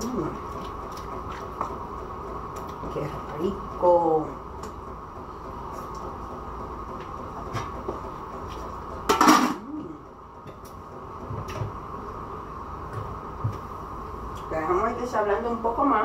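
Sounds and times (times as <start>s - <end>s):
steady background hum: 0.0s - 16.0s
utensils and pots clinking: 9.1s - 9.6s.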